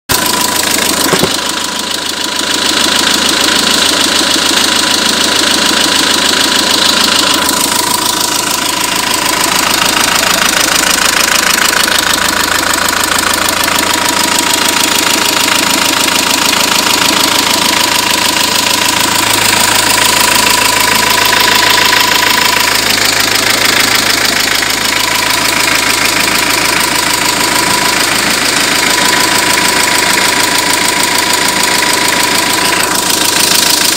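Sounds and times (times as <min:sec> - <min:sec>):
diesel engine running: 0:00.1 - 0:33.9.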